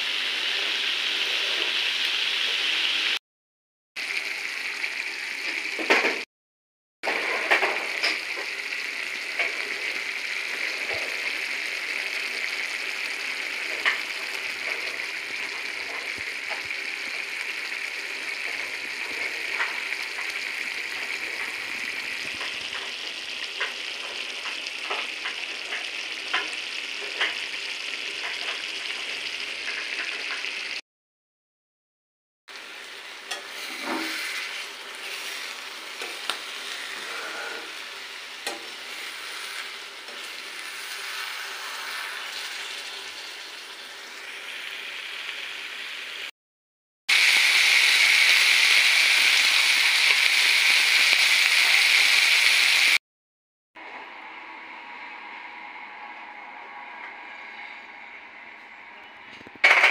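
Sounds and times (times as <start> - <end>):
food sizzling in a pan: 0.0 - 3.2, 4.0 - 6.3, 7.0 - 30.8, 32.5 - 46.3, 47.1 - 53.0
spatula scraping a pan: 33.3 - 42.8.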